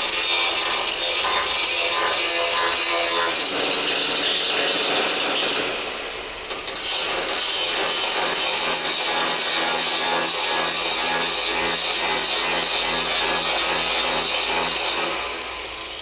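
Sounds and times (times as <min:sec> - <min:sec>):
sanding on steel panels: 0:00.0 - 0:05.4.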